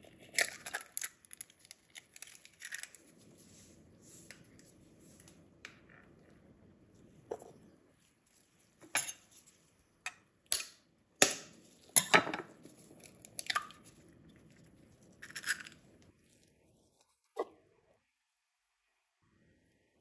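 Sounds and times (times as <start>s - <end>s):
eggshell crackling apart: 0.2s - 3.2s, 12.7s - 16.1s.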